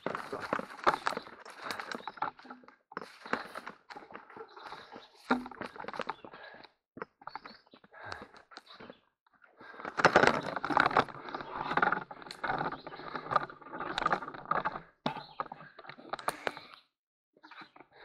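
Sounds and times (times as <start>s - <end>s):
rustling and knocking: 5.2s - 6.1s.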